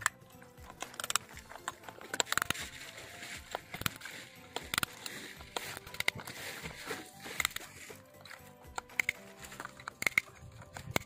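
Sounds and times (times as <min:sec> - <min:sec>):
wrench and plastic clicks: 0:00.0 - 0:11.0.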